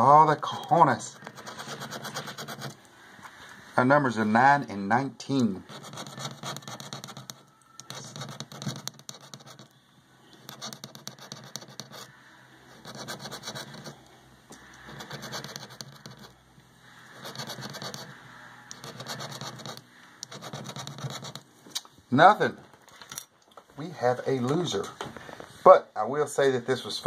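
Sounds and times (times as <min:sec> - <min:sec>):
lottery ticket being scratched: 0:00.0 - 0:02.8, 0:05.4 - 0:09.8, 0:10.4 - 0:14.0, 0:14.6 - 0:16.4, 0:17.0 - 0:21.5.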